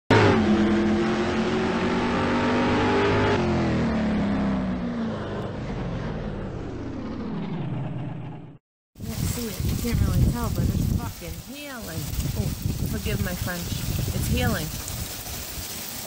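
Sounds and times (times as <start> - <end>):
car engine revving: 0.1 - 8.6.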